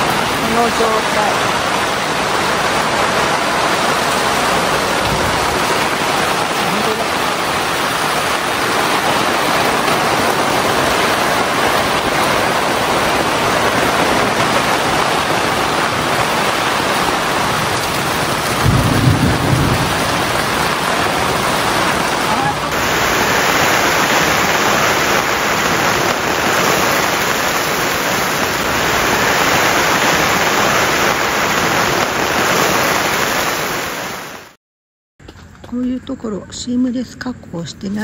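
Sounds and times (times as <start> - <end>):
heavy rain on tent and gravel: 0.0 - 34.6
low rumble of thunder: 3.4 - 26.0.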